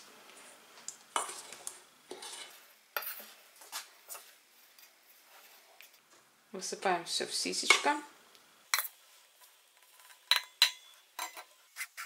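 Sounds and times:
metal spoon scraping a steel bowl: 1.2 - 3.2.

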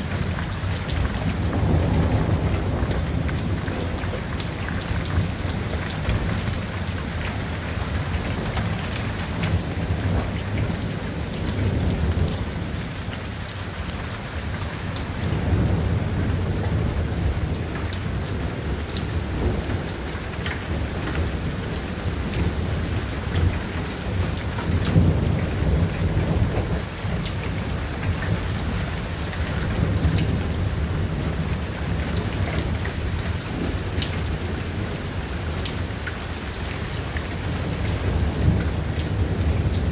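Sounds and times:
rolling thunder: 0.0 - 6.7, 15.2 - 36.0
heavy rain falling: 0.0 - 39.9.

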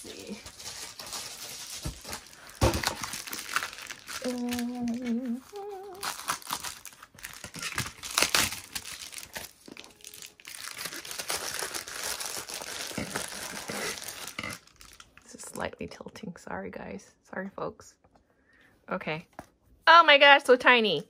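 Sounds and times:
plastic mailer crinkling: 0.0 - 15.0
woman humming: 4.2 - 6.1.

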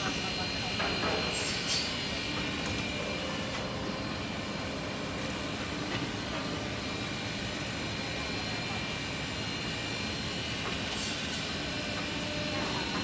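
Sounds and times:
factory motors running: 0.0 - 13.0.

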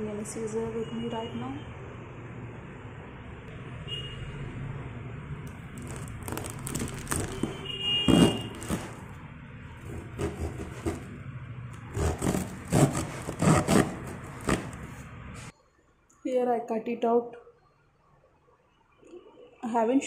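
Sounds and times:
plastic wrapping crinkling: 5.5 - 9.2
knife sawing through parcel tape: 5.8 - 9.1, 9.8 - 11.2, 11.9 - 15.5.

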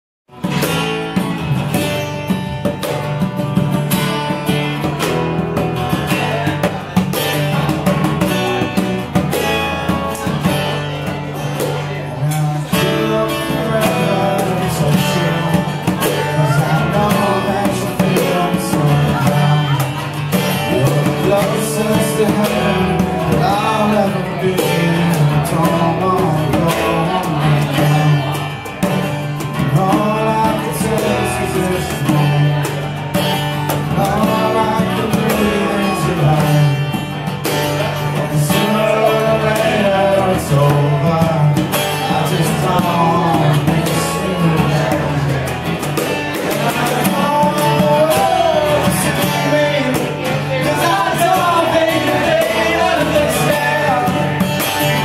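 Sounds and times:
acoustic guitar strumming: 0.3 - 55.0
man singing into microphone: 11.8 - 28.7, 29.4 - 33.1, 33.7 - 55.0.

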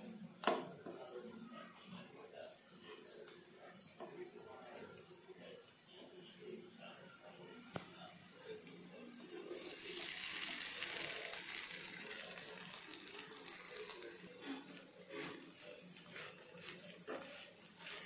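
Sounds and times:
chilies sizzling in hot oil: 8.2 - 18.0
spatula scraping and stirring: 9.5 - 18.0.

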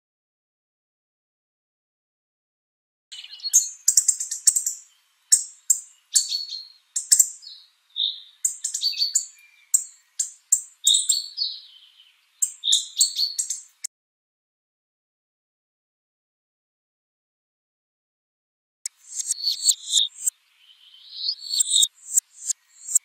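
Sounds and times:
bird song with sharp high notes: 3.1 - 13.9, 18.8 - 23.0.

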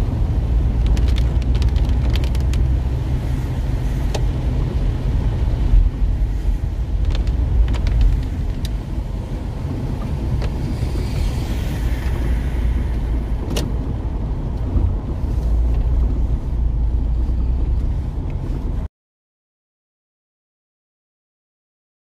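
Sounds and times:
engine and road rumble: 0.0 - 18.9
tyre hiss on wet road: 10.7 - 13.4.

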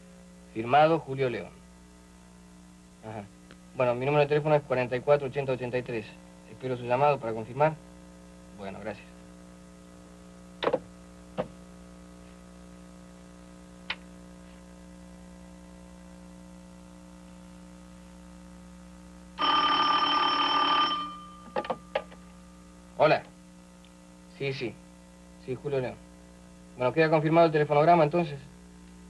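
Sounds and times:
faint steady hum: 0.0 - 29.0
telephone bell ringing: 19.4 - 21.6.

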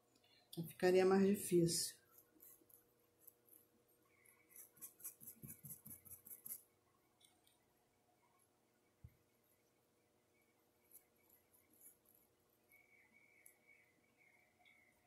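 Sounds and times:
paintbrush strokes on porcelain: 1.4 - 6.7, 10.3 - 15.0.

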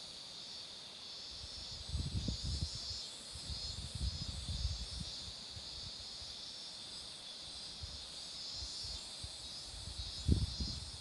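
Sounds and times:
cicadas droning: 0.0 - 11.0.

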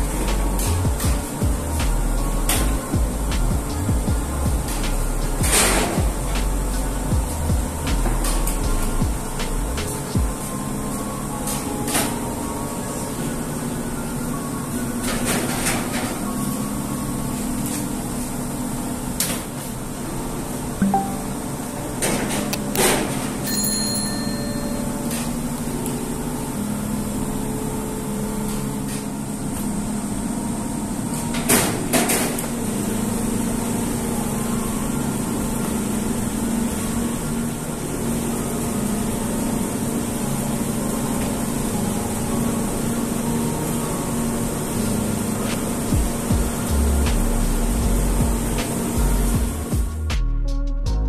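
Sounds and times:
steady machine hum: 0.0 - 51.0.

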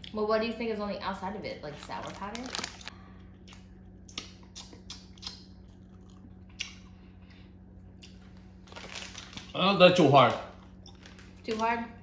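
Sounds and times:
low steady hum: 0.0 - 12.0
person chewing gummy candy: 2.5 - 7.1, 7.9 - 9.6, 10.5 - 11.5.

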